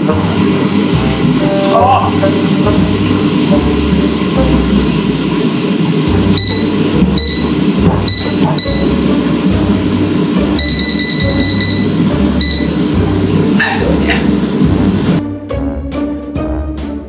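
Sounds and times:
control panel beeping: 0:06.4 - 0:09.0, 0:10.6 - 0:12.9.

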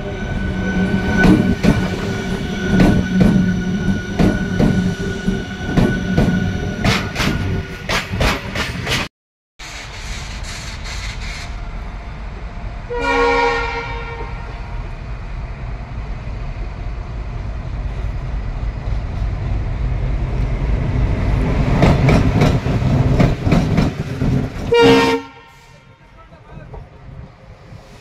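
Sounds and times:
locomotive horn blast: 0:12.9 - 0:14.6, 0:24.7 - 0:26.2.

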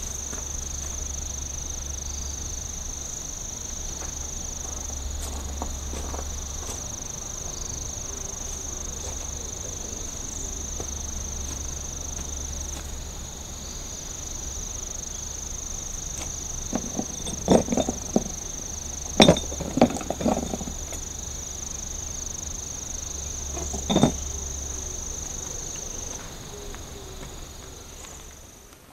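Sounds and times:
crickets trilling: 0:00.0 - 0:28.9
knocks: 0:16.7 - 0:18.4, 0:23.6 - 0:24.2.

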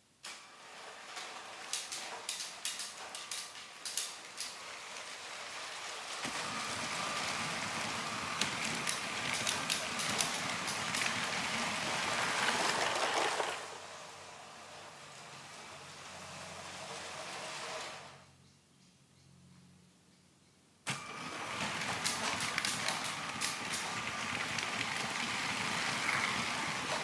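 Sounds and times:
toy train wheels clicking on track: 0:00.9 - 0:13.7, 0:21.7 - 0:27.0.

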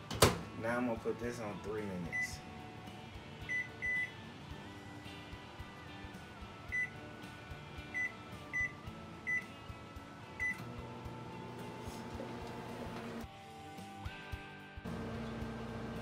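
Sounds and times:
microwave keypad beeping: 0:03.5 - 0:04.1, 0:10.4 - 0:10.7.

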